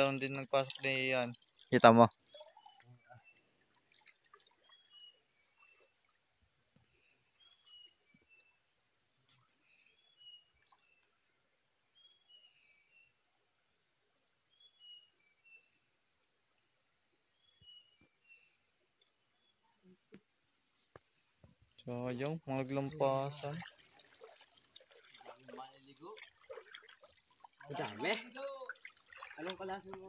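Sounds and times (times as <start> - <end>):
insects droning: 0.0 - 30.0
bird chirps: 0.7 - 5.9, 22.7 - 30.0.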